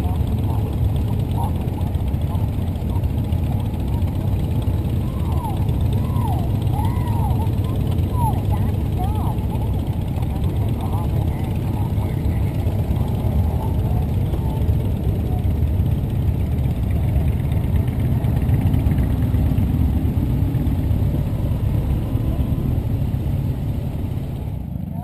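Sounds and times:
motorcycle engine rumbling: 0.0s - 25.0s.

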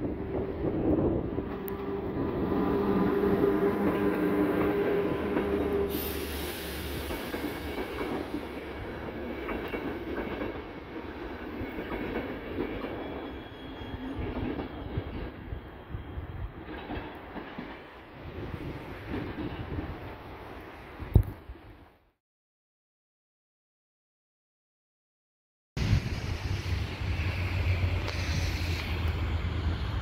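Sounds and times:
train coaches rumbling and clattering: 0.0s - 20.7s, 25.8s - 30.0s
electric locomotive humming: 0.0s - 20.8s, 25.8s - 30.0s
train wheel squeal: 2.8s - 8.6s, 11.6s - 17.1s, 26.3s - 30.0s.

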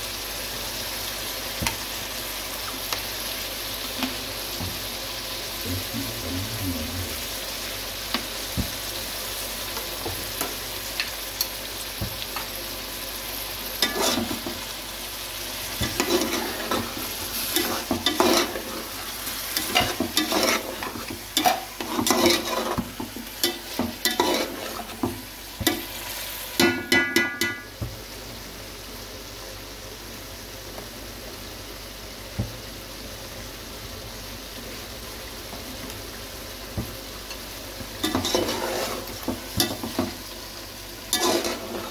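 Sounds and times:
food sizzling in a pan: 0.0s - 41.9s
spatula scraping a pan: 13.8s - 14.6s, 15.7s - 25.9s, 38.0s - 40.2s, 41.1s - 41.9s
metal clattering on a pan: 26.6s - 27.7s.

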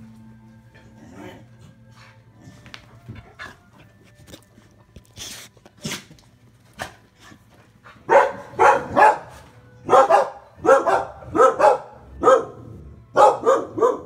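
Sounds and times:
dog barking: 8.1s - 14.0s.

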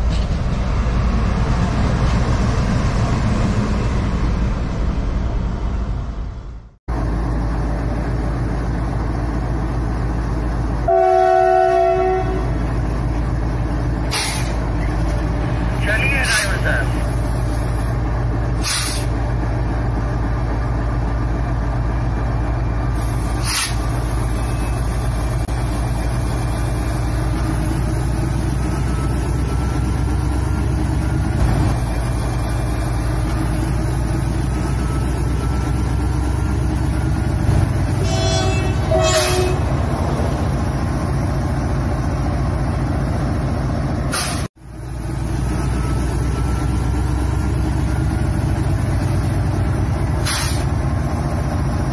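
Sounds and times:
diesel locomotive engine throbbing: 0.0s - 51.9s
locomotive horn toots: 10.8s - 12.7s, 37.9s - 39.9s.

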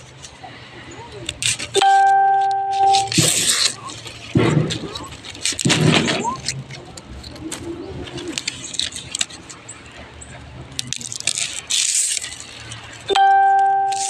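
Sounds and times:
clicks and scrapes of stripping: 1.2s - 1.8s, 2.9s - 9.8s, 10.7s - 13.2s
loud horn-like beep: 1.8s - 3.2s
leaf midribs rustling: 10.7s - 13.1s.

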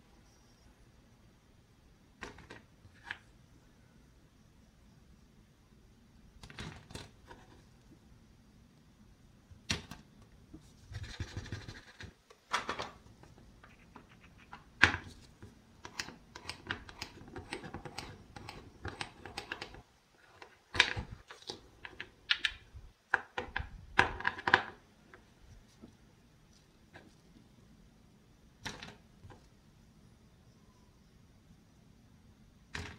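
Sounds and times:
wooden pieces clicking and knocking: 12.4s - 24.8s.

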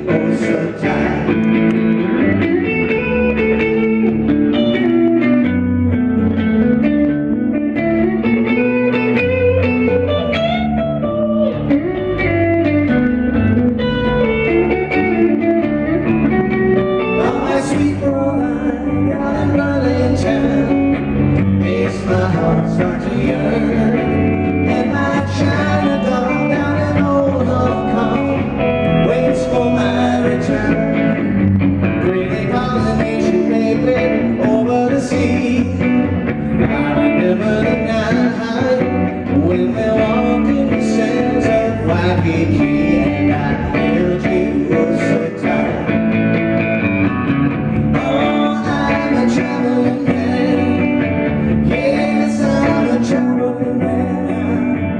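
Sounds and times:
man singing into microphone: 0.0s - 1.5s, 17.0s - 31.2s, 32.0s - 46.0s, 47.9s - 54.9s
rock band with electric guitar: 0.0s - 54.9s.

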